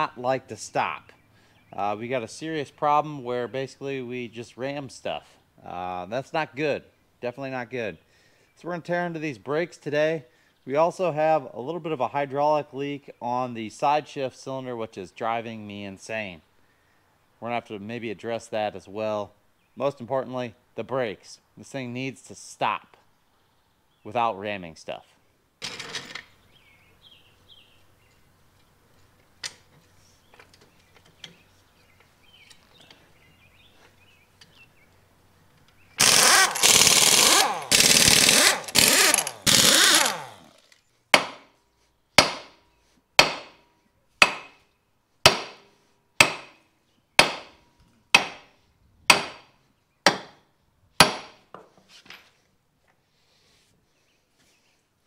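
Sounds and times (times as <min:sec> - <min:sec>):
pneumatic impact wrench bursts: 0:36.0 - 0:40.8
sledgehammer striking a wheel: 0:41.2 - 0:41.5, 0:42.2 - 0:42.6, 0:43.2 - 0:43.6, 0:44.2 - 0:44.6, 0:45.3 - 0:46.6, 0:47.2 - 0:47.6, 0:48.2 - 0:48.5, 0:49.1 - 0:49.5, 0:50.1 - 0:50.4, 0:51.0 - 0:51.4.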